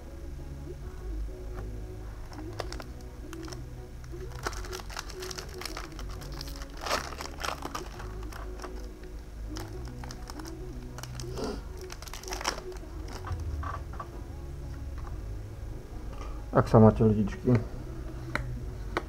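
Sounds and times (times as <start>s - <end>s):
foil wrapper crinkling: 2.3s - 13.5s.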